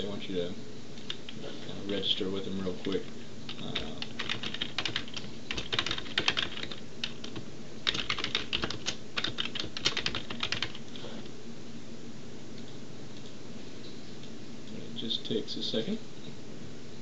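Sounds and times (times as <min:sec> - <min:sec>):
keyboard typing: 0:02.8 - 0:10.9.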